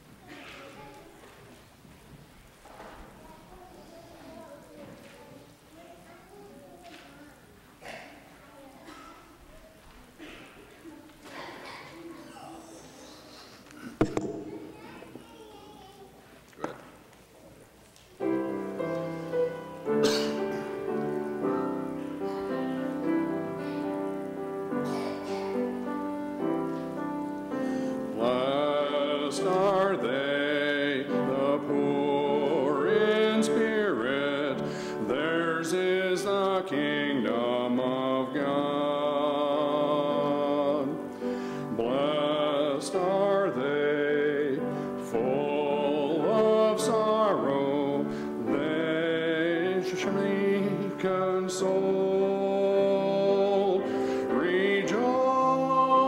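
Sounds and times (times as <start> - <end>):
grand piano: 18.1 - 56.0
person singing with vibrato: 18.2 - 56.0.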